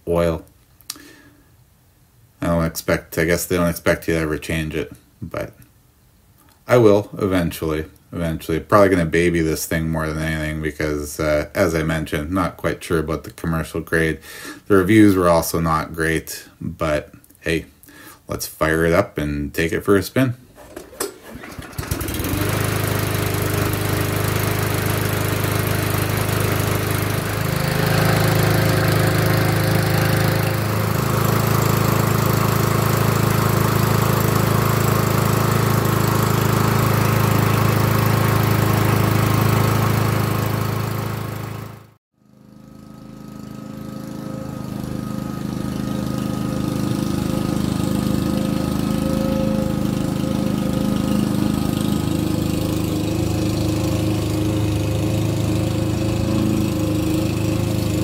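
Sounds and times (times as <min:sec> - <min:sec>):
lawnmower engine running: 0:20.5 - 0:58.0.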